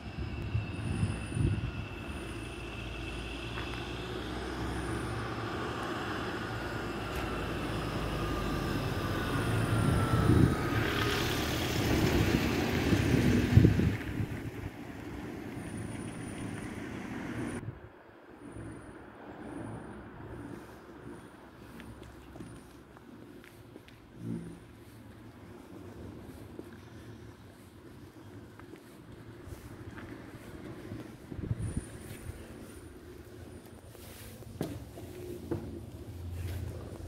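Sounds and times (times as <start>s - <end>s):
street traffic noise: 0.0s - 37.0s
vehicle passing with rumble: 0.1s - 27.7s.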